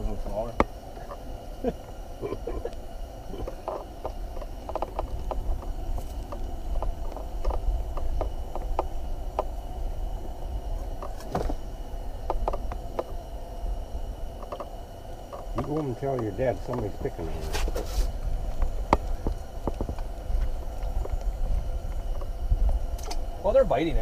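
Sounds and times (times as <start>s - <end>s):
steady low rumble: 0.0s - 24.0s.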